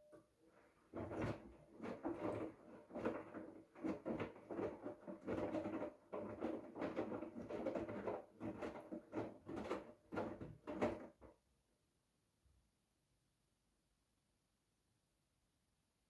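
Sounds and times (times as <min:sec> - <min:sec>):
washing machine clothes sloshing: 0:00.6 - 0:11.2.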